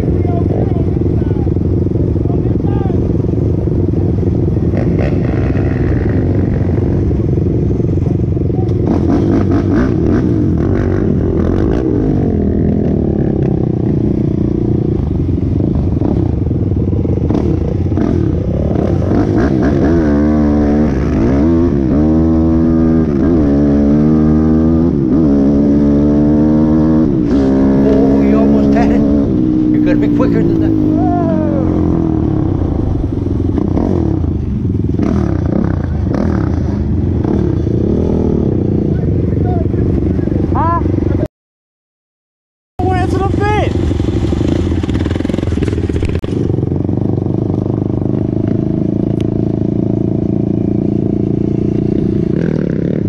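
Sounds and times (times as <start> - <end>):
quad engine revving: 4.6 - 7.5, 8.6 - 16.4, 17.1 - 41.2.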